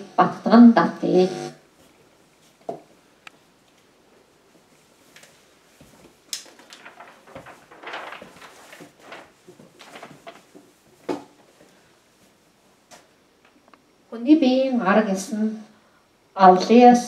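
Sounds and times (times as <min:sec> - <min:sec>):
paper rustling: 0:05.1 - 0:11.4.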